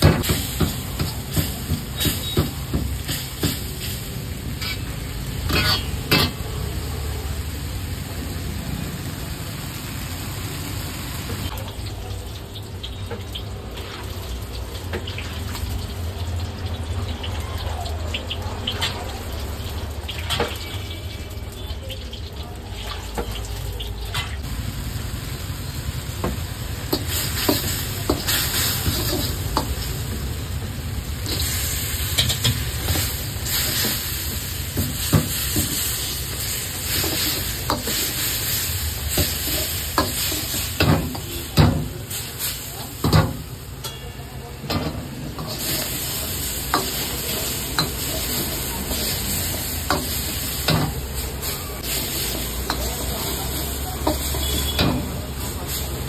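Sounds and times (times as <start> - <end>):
gas burner rumble: 0.0 - 12.2, 24.4 - 56.0
chicken sizzling in a wok: 0.0 - 56.0
metal ladle scraping a pan: 3.8 - 6.4.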